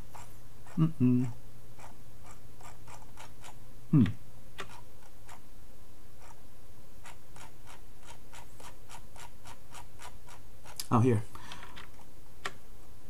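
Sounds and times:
steady low hum: 0.0s - 13.0s
mouse scroll wheel clicking: 4.6s - 5.4s, 7.0s - 10.9s.

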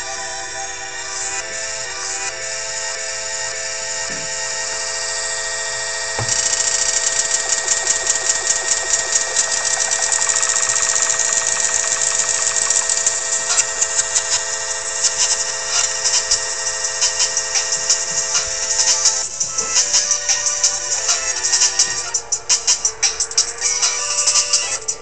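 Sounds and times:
buzzing machine-like sample stutter: 4.1s - 25.0s
electronic held tones: 5.9s - 25.0s.

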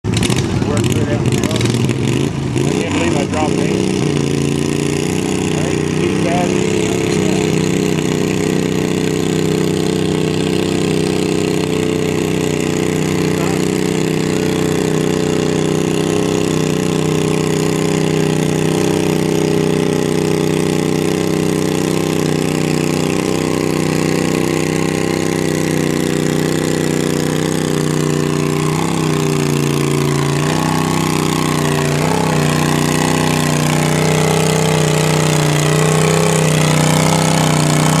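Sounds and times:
tractor engine running hard: 0.0s - 38.0s.

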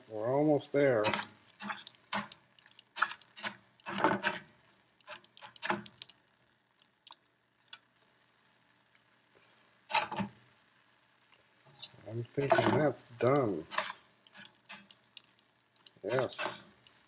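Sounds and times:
metal fork scraping a skillet: 1.0s - 2.4s, 3.0s - 5.9s, 9.9s - 10.4s, 11.7s - 15.0s, 15.8s - 17.0s.

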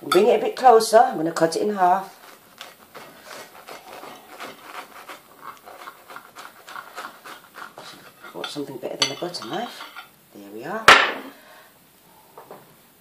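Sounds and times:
knife sawing through toasted bread: 1.7s - 8.7s.

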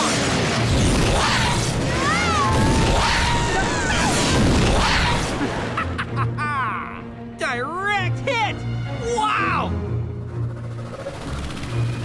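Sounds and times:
crackling electric blasts: 0.0s - 5.8s.

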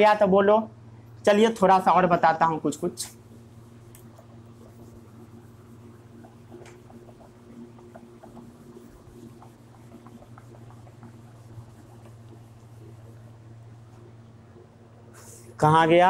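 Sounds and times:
fan humming: 0.0s - 16.0s
duster rubbing on whiteboard: 3.0s - 14.2s.

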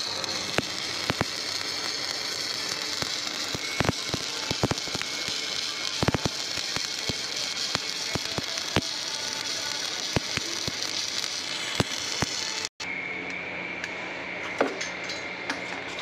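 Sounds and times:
sharp welding pops: 0.0s - 12.7s
welding arc hiss and crackle: 0.0s - 12.8s.

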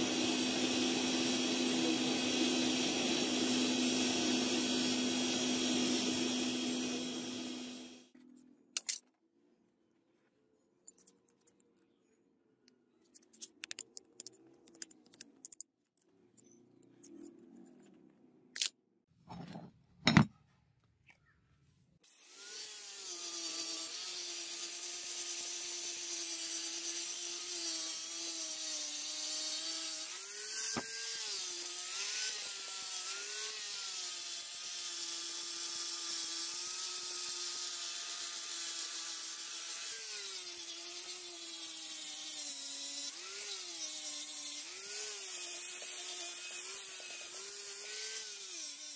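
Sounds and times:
angle grinder whining: 0.0s - 8.1s, 22.1s - 48.9s.

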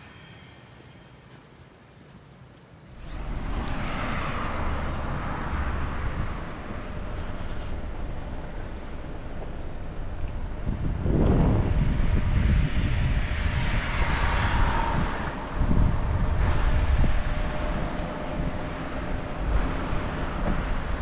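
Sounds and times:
wind buffeting microphone: 2.9s - 21.0s.

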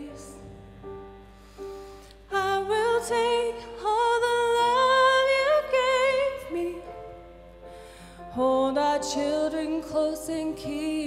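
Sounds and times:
woman singing a slow ballad: 0.0s - 0.6s, 2.3s - 7.2s, 8.2s - 11.0s
soft instrumental accompaniment: 0.0s - 11.0s.

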